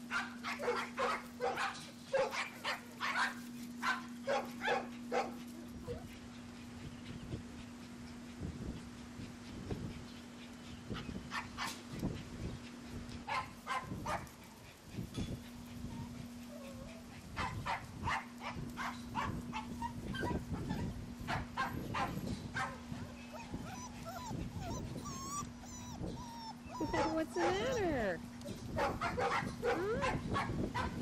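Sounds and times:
puppies yipping and squeaking: 0:00.1 - 0:12.7, 0:18.8 - 0:31.0.

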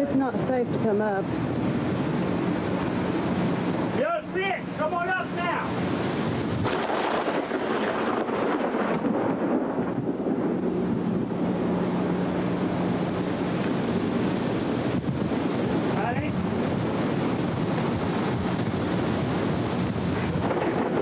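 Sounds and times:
wind roaring on microphone: 0:00.0 - 0:21.0
low hum: 0:06.6 - 0:21.0.

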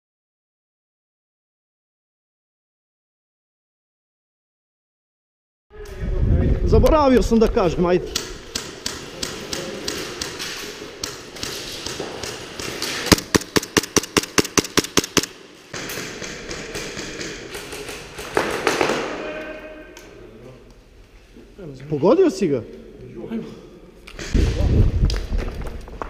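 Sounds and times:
airsoft pistol rapid shots: 0:08.5 - 0:19.1.

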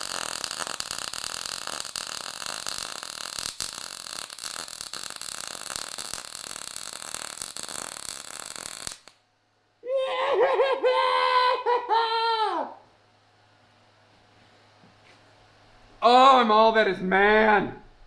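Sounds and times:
welder arc crackling and sizzling: 0:00.0 - 0:09.2.

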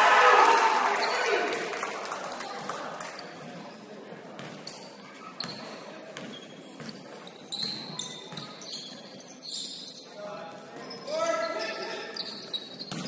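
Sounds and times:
sneaker squeaks: 0:03.2 - 0:13.0.

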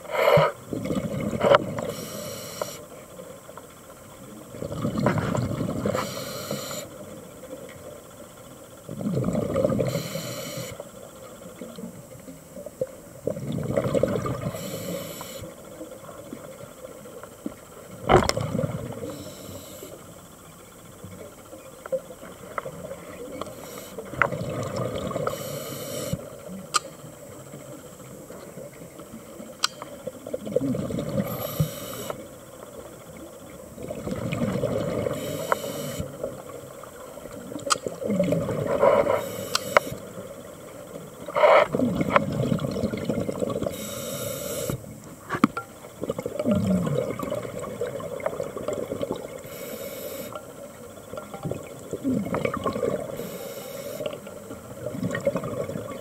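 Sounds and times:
regulator inhalation hiss: 0:00.0 - 0:00.6, 0:01.8 - 0:02.9, 0:05.9 - 0:07.0, 0:09.8 - 0:10.8, 0:14.5 - 0:15.6, 0:19.0 - 0:20.0, 0:23.5 - 0:24.1, 0:25.3 - 0:26.3, 0:31.3 - 0:32.2, 0:35.1 - 0:36.1, 0:38.8 - 0:40.1, 0:43.7 - 0:44.9, 0:49.4 - 0:50.4, 0:53.2 - 0:54.2
exhaled bubbles burbling: 0:00.4 - 0:01.9, 0:04.5 - 0:06.0, 0:08.9 - 0:10.0, 0:13.1 - 0:14.8, 0:17.8 - 0:19.2, 0:24.0 - 0:25.4, 0:30.2 - 0:32.1, 0:33.6 - 0:39.2, 0:41.2 - 0:43.8, 0:45.9 - 0:49.5, 0:51.1 - 0:53.3, 0:54.0 - 0:56.0.

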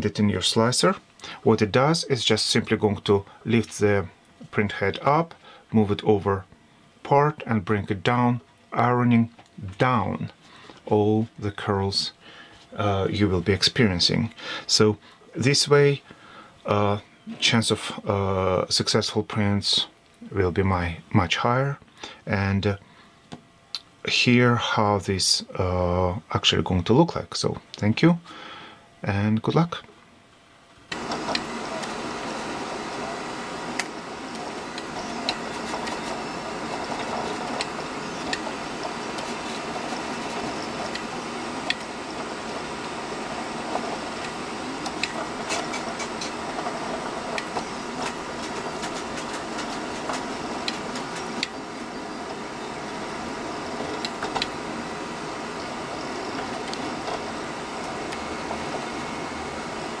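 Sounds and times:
three-d printer whirring: 0:30.9 - 1:00.0
small printer clicks: 0:47.3 - 0:51.6, 0:53.9 - 0:54.6.

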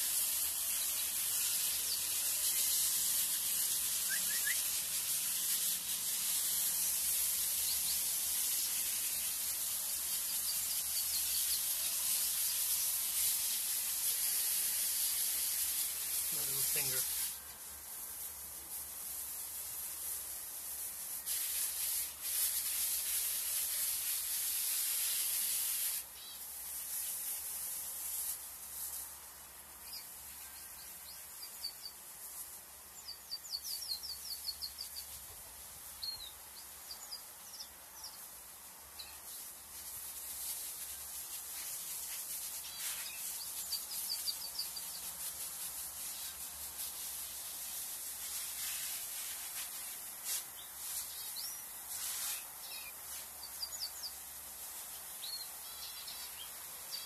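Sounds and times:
loud steady hiss: 0:00.0 - 0:57.0
small birds chirping: 0:00.1 - 0:13.4, 0:14.1 - 0:17.3, 0:29.8 - 0:47.1, 0:47.7 - 0:57.0.

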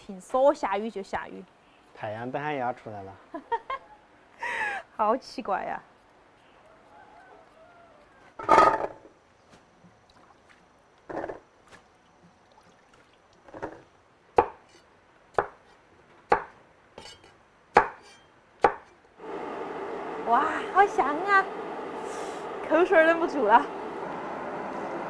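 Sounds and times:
knife chopping on a board: 0:14.4 - 0:14.7, 0:15.3 - 0:15.7, 0:16.3 - 0:18.9.

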